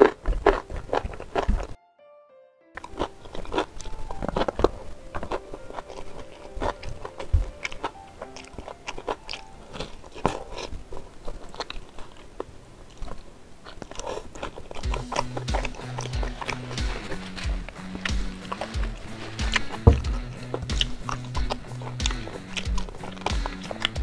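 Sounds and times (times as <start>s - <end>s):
person chewing: 0.0s - 1.8s, 2.8s - 24.0s
faint background music: 0.0s - 24.0s
wet mouth clicks and smacks: 13.8s - 24.0s.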